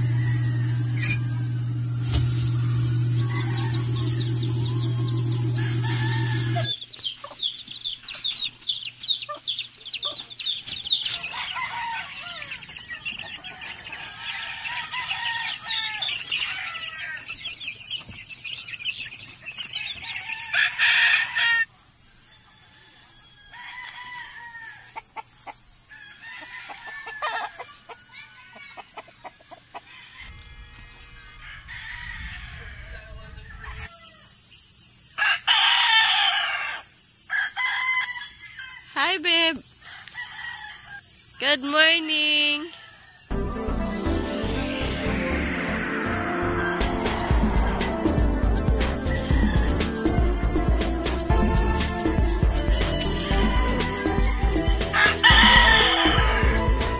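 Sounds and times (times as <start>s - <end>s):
steady hum: 0.0s - 6.7s, 43.3s - 56.9s
chicks peeping: 0.0s - 20.6s
chickens clucking: 0.0s - 20.8s, 24.9s - 30.4s, 43.3s - 56.9s.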